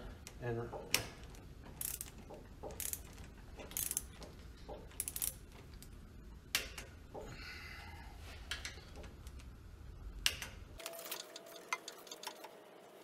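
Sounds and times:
torque wrench ratchet clicking: 0:01.8 - 0:03.1, 0:03.8 - 0:04.1, 0:05.0 - 0:05.4.

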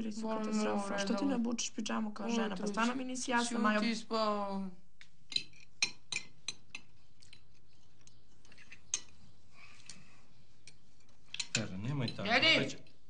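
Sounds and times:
forks clinking on plates: 0:11.3 - 0:12.3.

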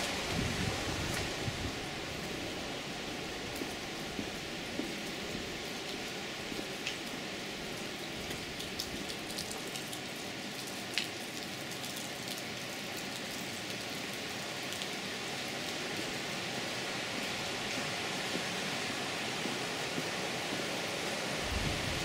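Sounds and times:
rushing water: 0:00.0 - 0:22.0
water drips ticking: 0:08.0 - 0:12.5.

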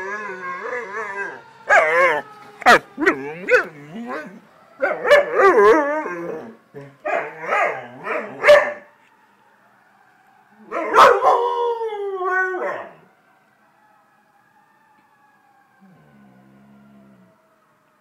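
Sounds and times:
dog howling: 0:00.0 - 0:08.8
faint siren: 0:00.0 - 0:18.0.

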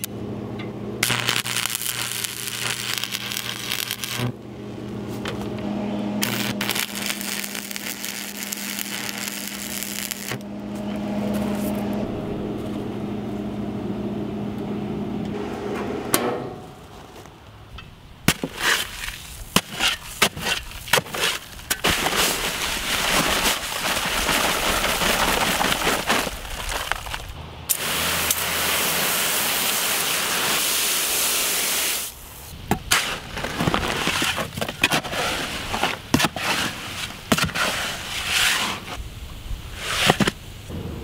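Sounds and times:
transformer hum: 0:00.0 - 0:19.1, 0:40.7 - 0:41.0
arc welder crackling hiss: 0:01.0 - 0:04.4, 0:06.2 - 0:10.5, 0:18.4 - 0:32.5
powder pouring into wheelbarrow: 0:18.4 - 0:32.1, 0:33.0 - 0:38.9
paper bags knocking and rustling: 0:19.6 - 0:27.4.

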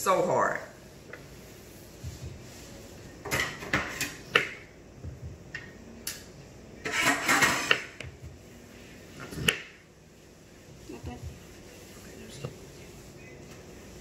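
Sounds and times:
knife scraping clatter: 0:06.9 - 0:07.9.

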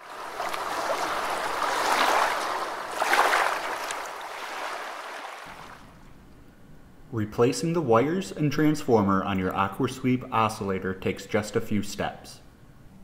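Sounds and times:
rushing splashing water: 0:00.0 - 0:06.0.

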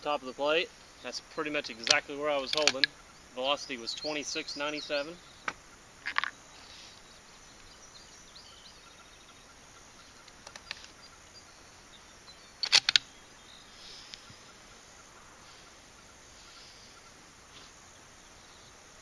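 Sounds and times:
bird chirps: 0:00.0 - 0:19.0
rifle bolt metallic clicks: 0:01.8 - 0:02.9, 0:12.6 - 0:13.1.

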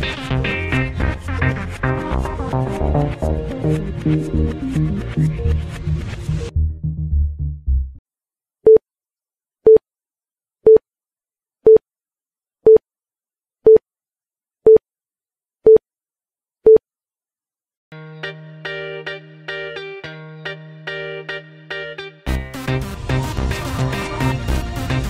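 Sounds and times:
electronic dance music: 0:00.0 - 0:07.3, 0:18.1 - 0:25.0.

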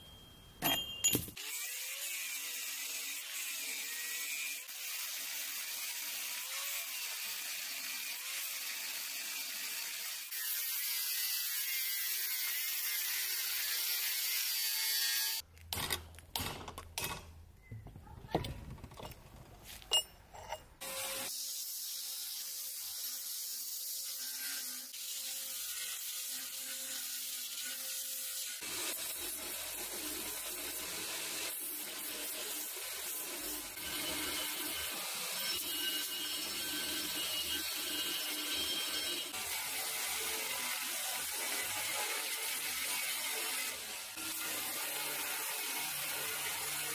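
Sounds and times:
steel grinding on belt: 0:28.4 - 0:46.9.

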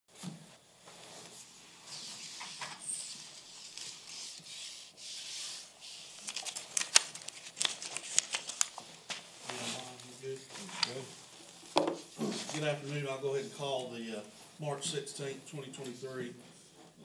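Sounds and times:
papers rustling: 0:05.5 - 0:13.8.

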